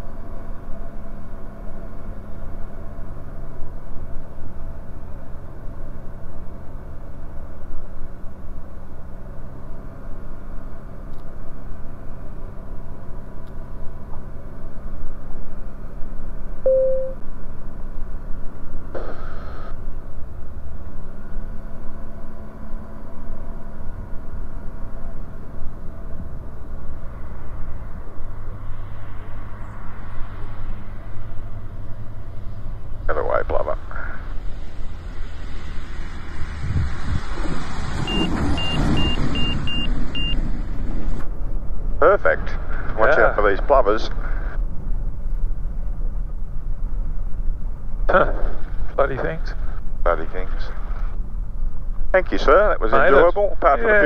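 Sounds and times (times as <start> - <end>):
light aircraft engine droning: 0.0 - 54.0
short electronic beep: 16.6 - 17.2, 38.1 - 40.4.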